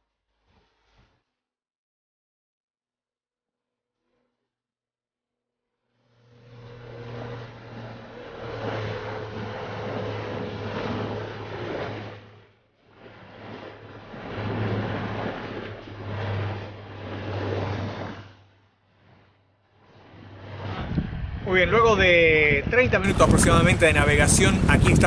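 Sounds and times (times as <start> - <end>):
outboard motor running: 6.0 - 21.0, 23.1 - 25.0
choppy water: 7.3 - 20.9, 23.0 - 25.0
wind rushing: 20.6 - 25.0.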